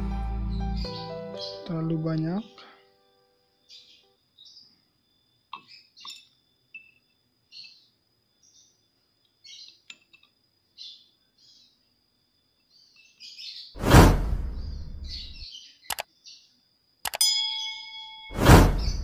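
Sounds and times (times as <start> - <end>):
small birds chirping: 0.3 - 2.9, 3.5 - 13.8, 14.5 - 16.8
whoosh with deep boom: 13.8 - 15.4, 18.4 - 19.0
faint steady high tone: 17.1 - 18.4.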